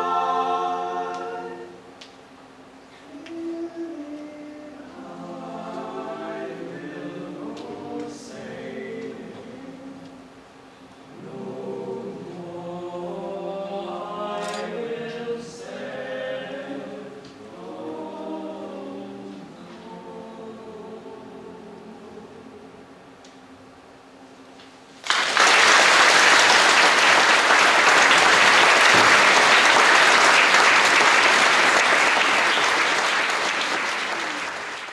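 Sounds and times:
young men singing a cappella: 0:03.1 - 0:10.1, 0:11.2 - 0:22.4.

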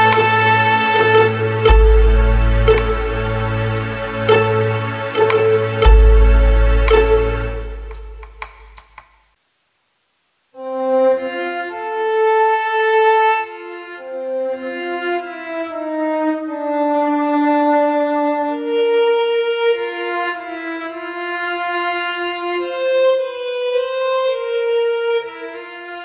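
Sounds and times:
slow instrumental melody: 0:00.0 - 0:09.1.

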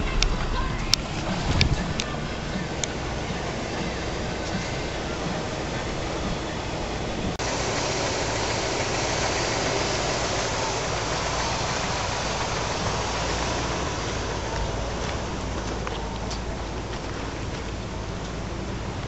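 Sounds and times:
tyres on gravel road: 0:00.0 - 0:19.0
vehicle engine rumble: 0:00.0 - 0:19.0.

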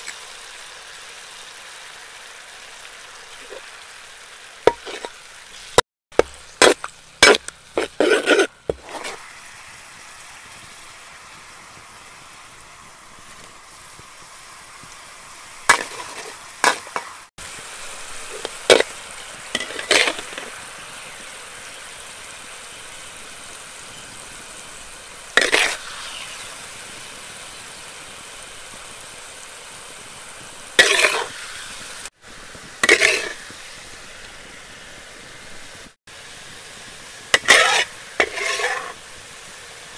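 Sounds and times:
sauce sizzling in a wok: 0:00.0 - 0:39.9
metal spatula scraping a pan: 0:04.7 - 0:05.2, 0:06.2 - 0:09.2, 0:15.7 - 0:17.2, 0:18.2 - 0:20.6, 0:25.4 - 0:26.6, 0:30.8 - 0:31.6, 0:32.8 - 0:33.5, 0:37.3 - 0:39.0.

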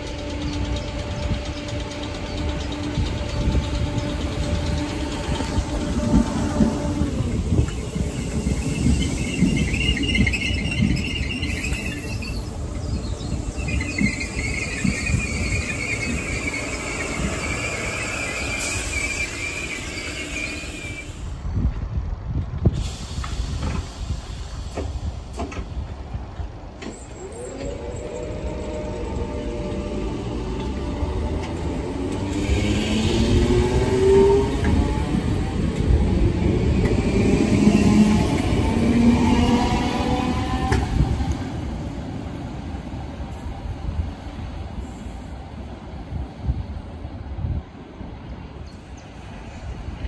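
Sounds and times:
train traction motors whining: 0:00.0 - 0:21.5, 0:23.2 - 0:42.5
train metallic squeal: 0:00.0 - 0:21.6, 0:26.8 - 0:42.0.

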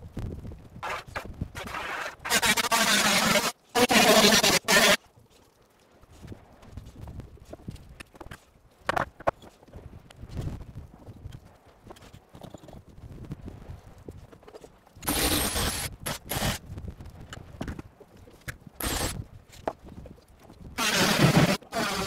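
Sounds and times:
cordless drill running: 0:18.8 - 0:19.2, 0:20.8 - 0:22.0.

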